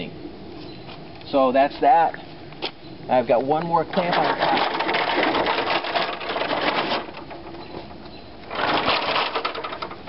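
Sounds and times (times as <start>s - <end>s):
stepladder rattling and clattering: 3.9s - 10.0s.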